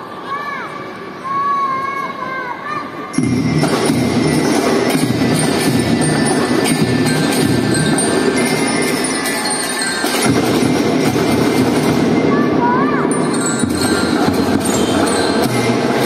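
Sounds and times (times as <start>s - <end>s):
bell-lyres ringing: 3.1s - 16.0s
marching drums: 3.2s - 16.0s.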